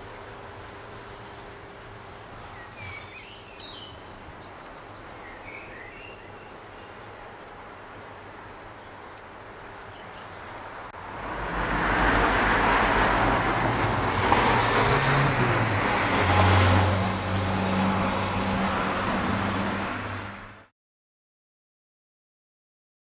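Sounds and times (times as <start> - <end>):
vehicle passing by: 10.6 - 20.7.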